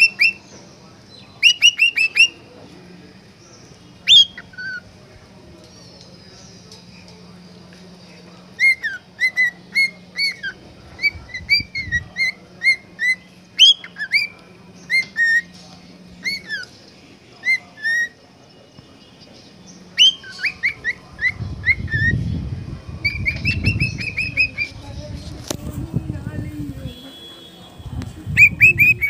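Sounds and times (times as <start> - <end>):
cockatiel whistling: 0.0 - 0.4, 1.4 - 2.4, 8.6 - 14.3, 20.0 - 22.2, 23.0 - 24.8, 28.4 - 29.0.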